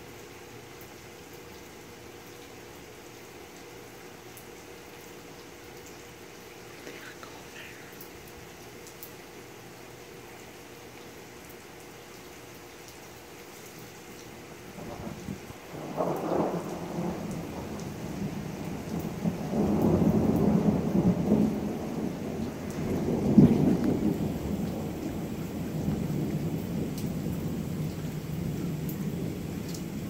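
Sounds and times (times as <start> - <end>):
steady rain: 0.0 - 30.0
thunder rumbling: 14.7 - 30.0.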